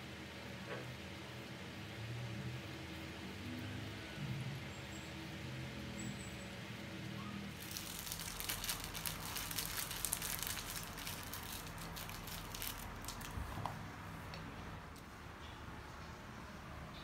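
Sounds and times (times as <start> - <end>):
plastic wrapper crackling: 7.6 - 13.6.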